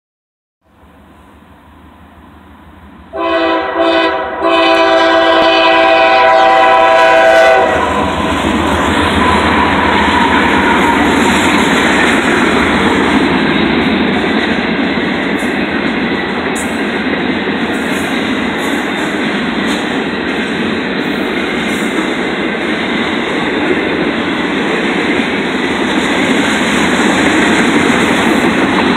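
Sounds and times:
locomotive air horn: 3.1 - 8.3, 9.1 - 11.0
train wheels on rails clacking: 7.8 - 28.9.

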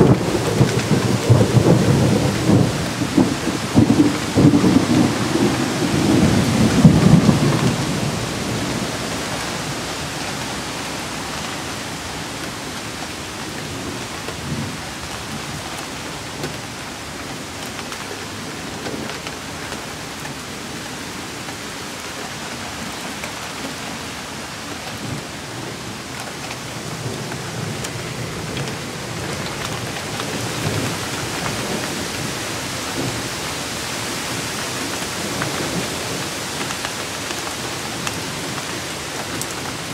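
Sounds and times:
thunder rumbling: 0.0 - 10.6, 25.0 - 39.9
steady rain falling: 0.0 - 39.9.

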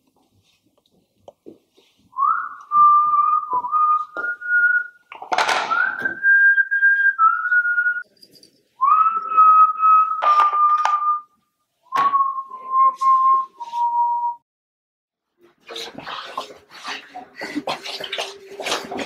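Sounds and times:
person whistling a slow tune: 2.2 - 5.0, 5.7 - 8.0, 8.8 - 14.4.

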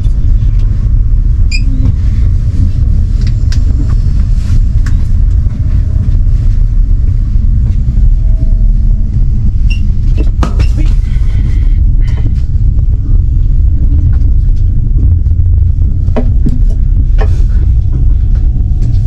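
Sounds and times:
train interior drone: 0.0 - 19.0.

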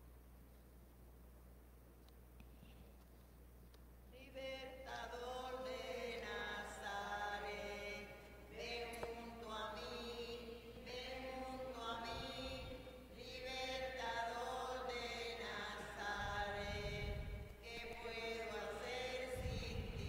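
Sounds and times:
slow hymn singing: 4.1 - 20.0.

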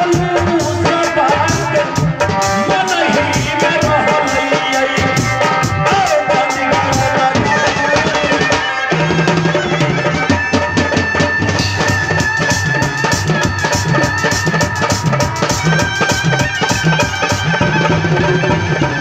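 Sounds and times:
man singing into microphone: 0.0 - 8.9
drums playing fast beat: 0.0 - 19.0
live band melody: 0.0 - 19.0.

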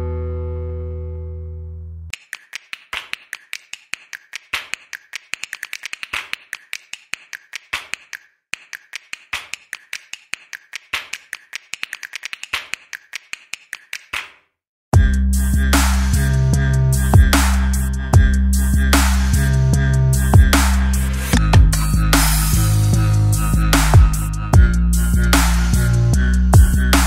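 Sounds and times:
plastic bricks clicking together: 2.1 - 14.3.

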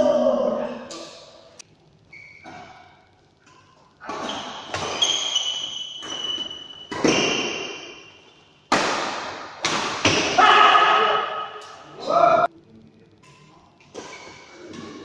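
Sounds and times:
shoes squeaking on court floor: 2.1 - 3.0, 4.0 - 8.4
racket hitting shuttlecock: 4.1 - 8.1, 8.7 - 10.4.

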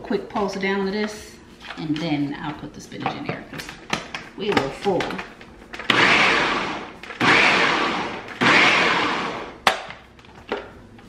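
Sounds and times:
food processor chopping: 5.8 - 10.0.

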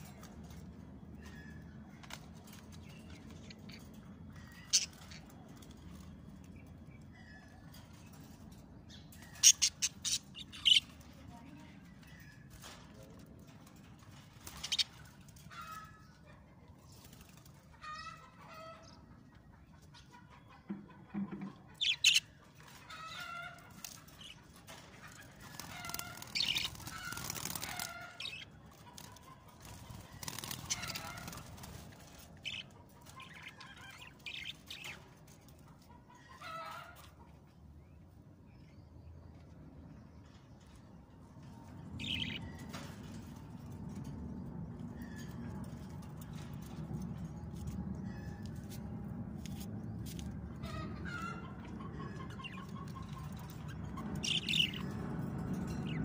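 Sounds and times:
budgerigars chirping: 9.3 - 10.9, 54.2 - 54.9
wing flapping: 25.4 - 28.0, 29.0 - 32.1.

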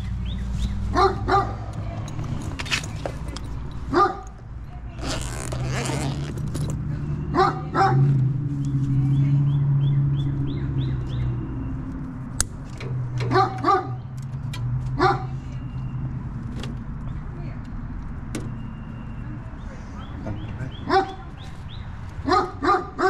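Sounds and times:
dog barking: 0.9 - 1.6, 3.9 - 4.3, 7.3 - 8.1, 13.3 - 14.0, 15.0 - 15.4, 20.8 - 21.3, 22.2 - 23.0.

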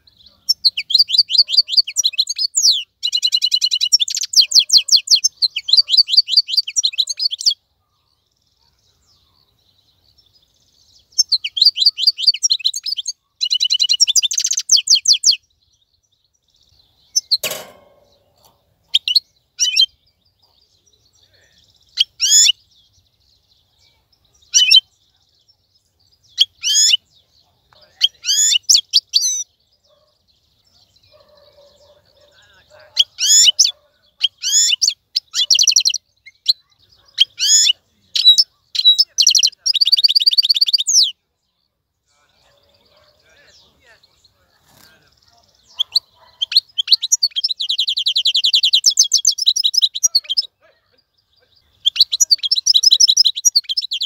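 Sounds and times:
goldfinch singing: 0.0 - 7.6, 8.3 - 41.2, 42.2 - 54.0
single knock: 17.4 - 18.3.

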